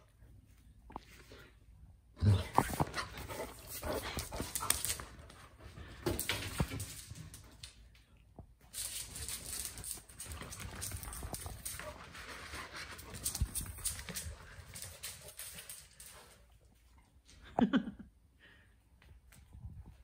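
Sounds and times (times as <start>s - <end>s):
dog claws clattering on floor: 8.7s - 16.4s.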